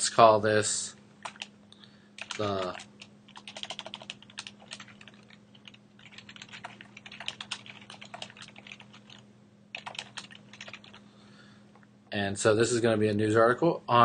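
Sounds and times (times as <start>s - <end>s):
faint low hum: 0.0s - 14.0s
typing on computer keyboard: 1.2s - 1.5s, 2.2s - 11.0s.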